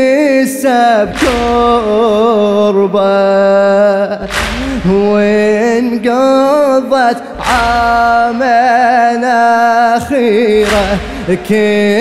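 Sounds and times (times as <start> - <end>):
man chanting unaccompanied: 0.0 - 12.0.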